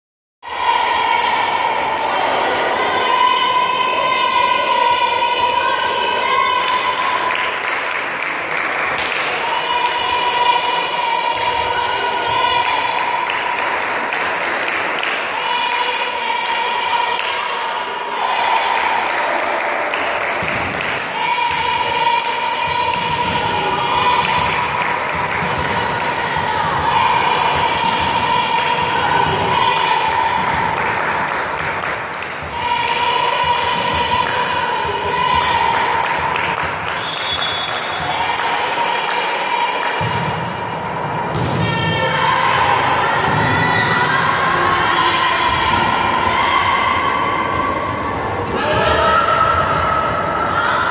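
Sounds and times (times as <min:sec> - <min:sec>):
rhythmic hand clapping: 0:06.6 - 0:10.0, 0:12.6 - 0:17.6, 0:18.5 - 0:23.1, 0:24.2 - 0:27.3, 0:29.7 - 0:34.5, 0:35.2 - 0:40.1
spectators chanting: 0:15.2 - 0:36.8.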